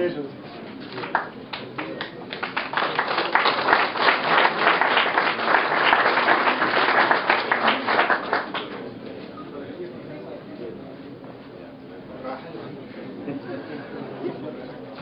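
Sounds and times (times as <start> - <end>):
audience applauding: 0.9 - 8.8.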